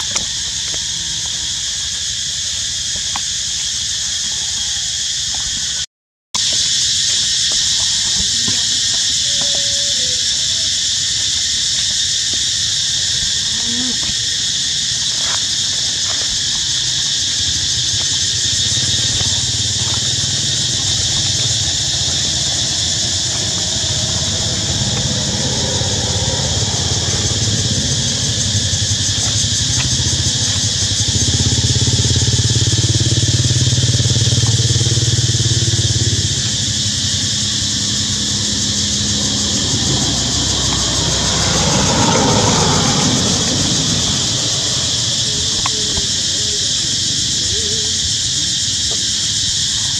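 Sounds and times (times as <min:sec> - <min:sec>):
high insect drone: 0:00.0 - 0:49.9
vehicle engine hum: 0:16.2 - 0:47.9.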